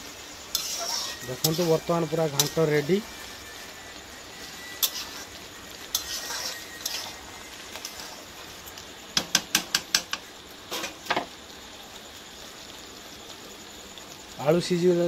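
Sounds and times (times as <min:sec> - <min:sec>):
metal ladle scraping a pan: 0:00.4 - 0:03.7, 0:04.4 - 0:08.5.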